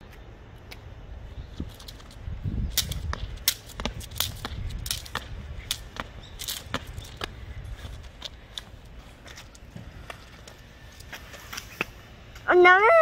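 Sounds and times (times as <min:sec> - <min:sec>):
jump rope slapping paving: 0:01.7 - 0:10.2.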